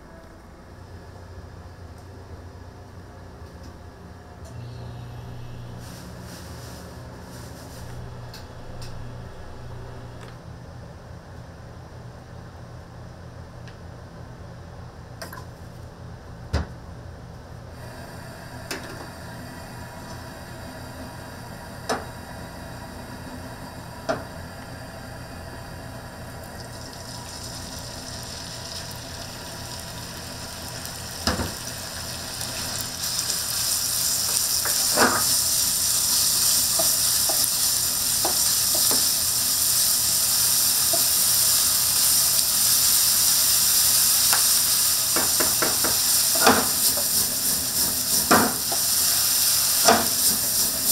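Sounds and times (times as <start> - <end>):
food sizzling in pan: 5.7 - 9.6, 26.2 - 50.9
utensil knocking against pan: 45.2 - 46.7.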